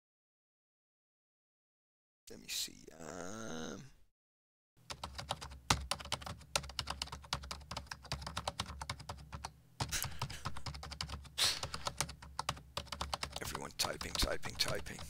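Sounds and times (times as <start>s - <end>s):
rapid keyboard typing: 4.8s - 15.0s.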